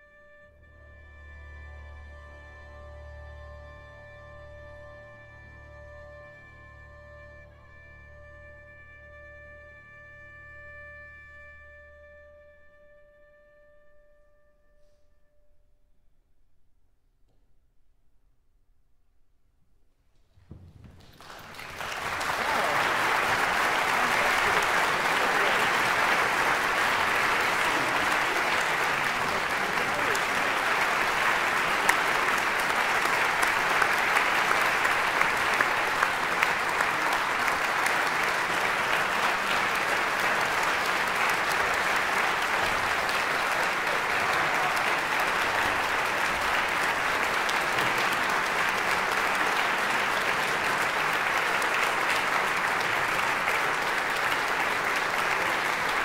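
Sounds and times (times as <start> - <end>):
audience applauding: 20.8 - 56.0.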